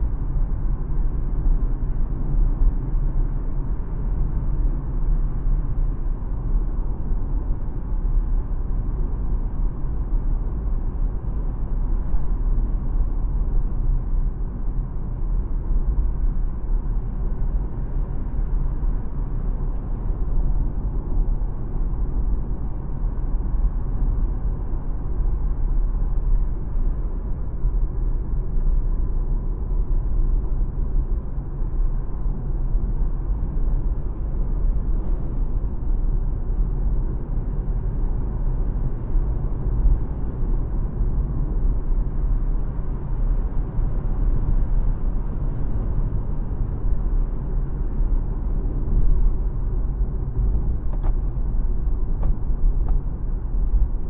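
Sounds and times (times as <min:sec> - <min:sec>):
road and tyre noise: 0:00.0 - 0:54.0.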